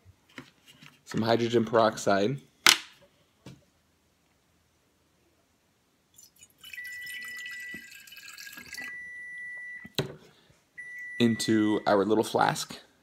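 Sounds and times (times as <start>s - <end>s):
liquid pouring into glass flask: 6.2s - 9.0s.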